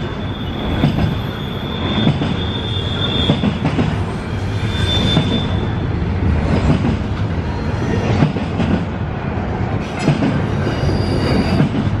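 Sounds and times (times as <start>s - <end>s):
high wheel squeal: 0.0s - 3.6s, 4.2s - 5.9s, 10.4s - 11.8s
train wheels rumbling on rails: 0.0s - 12.0s.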